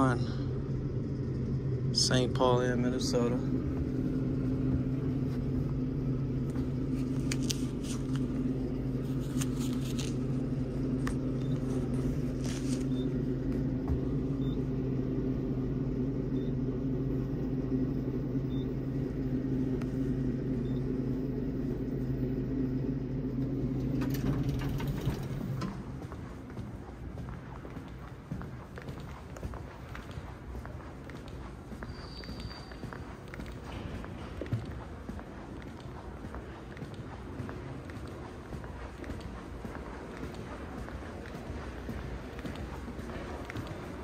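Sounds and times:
elevator hum and rumble: 0:00.0 - 0:44.0
elevator doors sliding open: 0:22.4 - 0:26.5.

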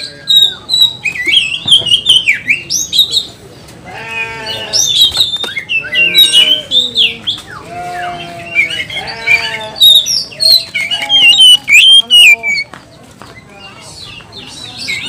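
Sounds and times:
bird low drawn-out calls: 0:04.0 - 0:12.7.

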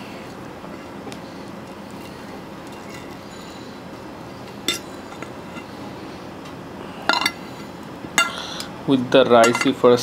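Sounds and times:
steady low background noise: 0:00.0 - 0:10.0
sharp clink: 0:04.7 - 0:04.9.

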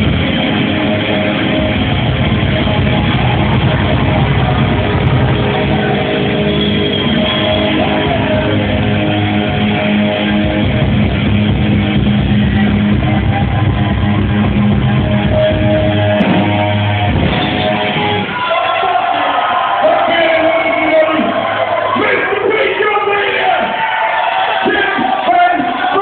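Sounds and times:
electric guitar: 0:00.0 - 0:18.4
bass guitar: 0:00.0 - 0:18.8
drums: 0:00.0 - 0:26.0.

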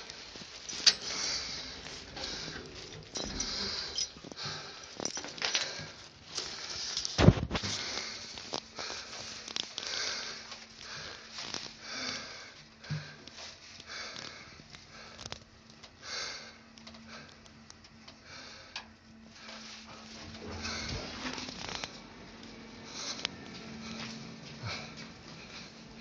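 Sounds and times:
elevator hum: 0:00.0 - 0:06.8, 0:13.9 - 0:26.0
soft hissing noises: 0:00.0 - 0:26.0.

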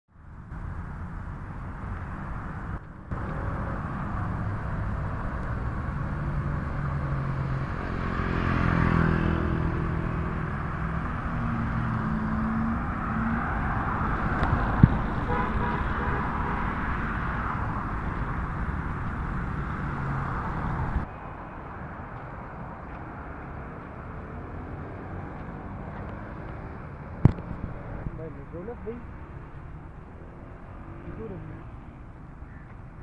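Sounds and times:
vehicles passing: 0:00.1 - 0:33.0
car horn toots: 0:15.2 - 0:16.4.

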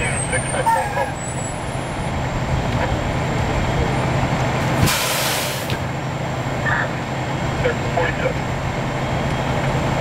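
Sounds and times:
diesel engines running: 0:00.0 - 0:10.0
loud hiss of air: 0:04.8 - 0:05.8.

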